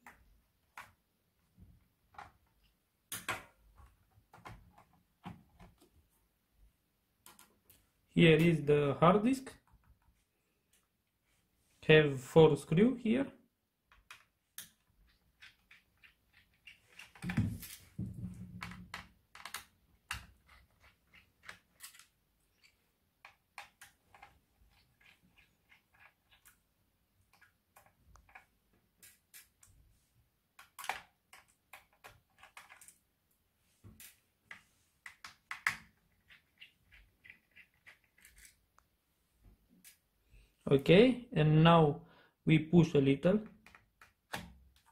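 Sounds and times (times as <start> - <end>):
fingers handling plastic: 13.9 - 17.9, 18.6 - 29.7, 30.6 - 33.0, 34.0 - 38.9.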